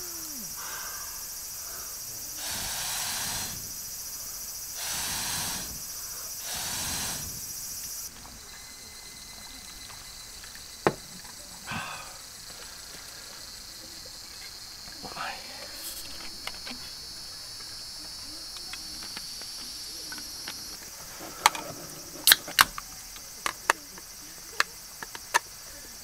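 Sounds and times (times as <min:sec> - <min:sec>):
insect hiss: 0:00.0 - 0:26.0
blowing through pipe into fire: 0:02.3 - 0:08.1.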